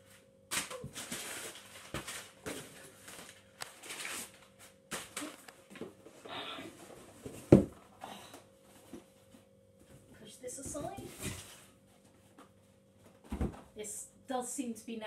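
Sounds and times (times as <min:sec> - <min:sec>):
packing paper rustling: 0:00.5 - 0:05.8
cardboard box thump: 0:07.2 - 0:07.8, 0:13.2 - 0:13.7.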